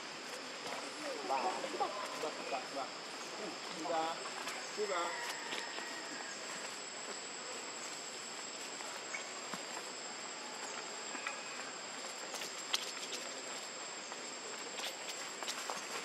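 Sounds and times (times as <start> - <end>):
high-pitched insect drone: 0.7 - 13.8
clicks and rustles in dry leaves: 10.6 - 16.0.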